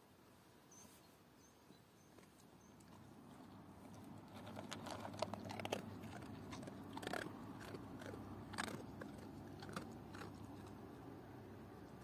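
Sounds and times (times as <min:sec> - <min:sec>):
dog crunching dry kibble: 0:02.2 - 0:11.1.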